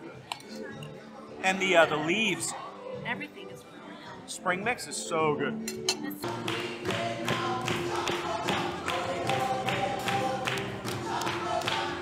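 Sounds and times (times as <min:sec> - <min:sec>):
lively music with steady beat: 0:03.4 - 0:12.0.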